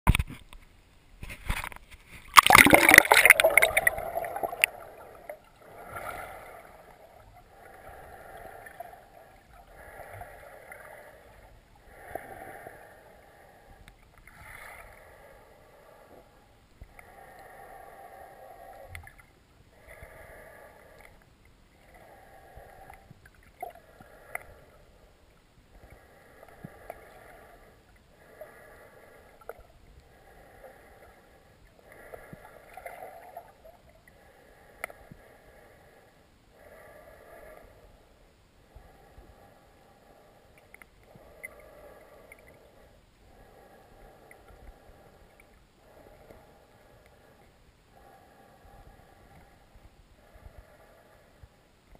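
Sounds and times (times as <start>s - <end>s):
camera splashing into water: 2.3s - 4.7s
muffled underwater swishing: 2.4s - 6.5s.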